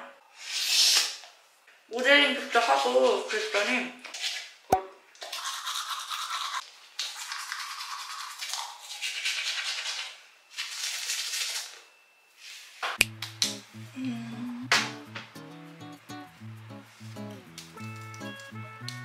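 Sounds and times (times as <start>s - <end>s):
toothbrush scrubbing teeth: 5.2s - 11.8s.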